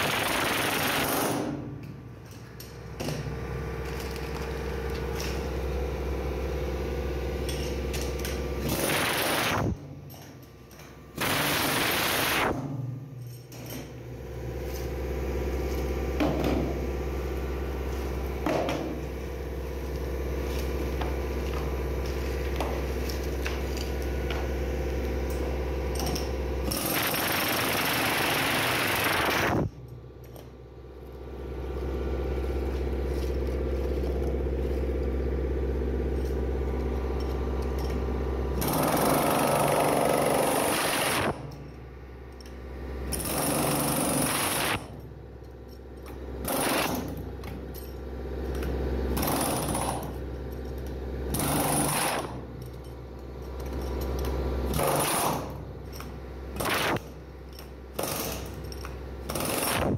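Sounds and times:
pneumatic chipping hammer on concrete: 0.0 - 5.8, 7.4 - 12.8, 25.2 - 30.5, 32.7 - 41.8, 42.4 - 45.1, 45.8 - 59.9.

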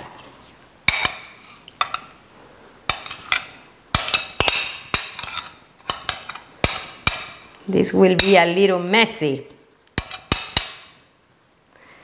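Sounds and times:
utensil scraping a ceramic plate: 2.9 - 6.5.

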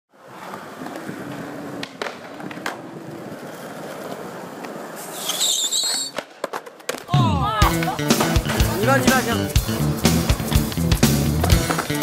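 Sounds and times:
skateboard wheels rolling on concrete: 0.1 - 12.0
skateboard clicks: 0.2 - 7.1, 11.4 - 12.0.

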